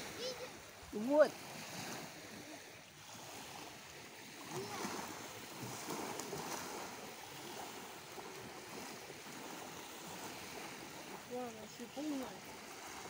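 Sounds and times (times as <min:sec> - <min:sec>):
waves lapping on sandy shore: 0:00.0 - 0:13.0.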